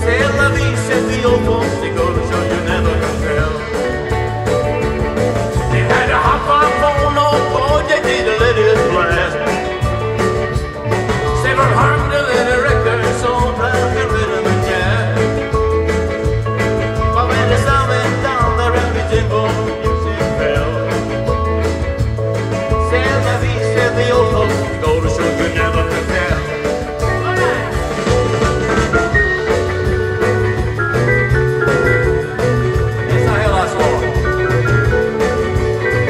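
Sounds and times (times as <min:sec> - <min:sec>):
electric guitar melody: 0:00.0 - 0:36.0
steady drum beat: 0:00.0 - 0:36.0
walking bass line: 0:00.0 - 0:36.0.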